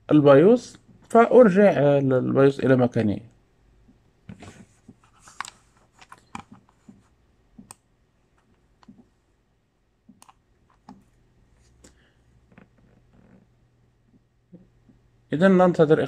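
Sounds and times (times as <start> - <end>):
computer mouse clicking: 4.9 - 7.8, 10.1 - 11.1.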